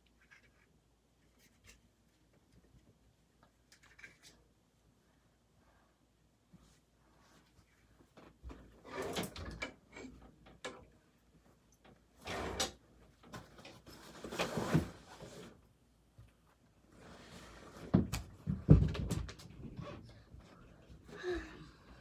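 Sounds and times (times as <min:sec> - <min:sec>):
drawer sliding open and shut: 0:08.8 - 0:10.1, 0:12.2 - 0:12.8, 0:14.0 - 0:15.5.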